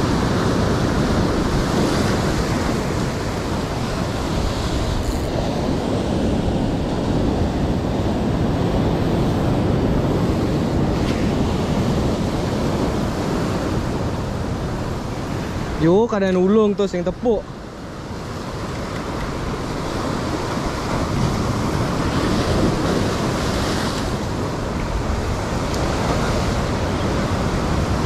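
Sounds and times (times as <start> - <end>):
wind noise on microphone: 0.0 - 15.8, 17.7 - 28.0
surf breaking on rocks: 18.4 - 28.0.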